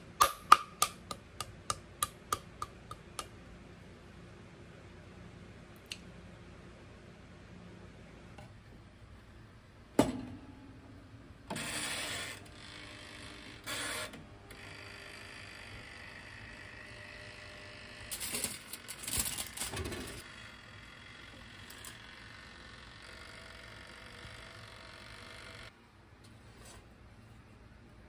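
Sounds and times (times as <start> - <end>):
timer dial ratcheting whir: 20.2 - 25.7.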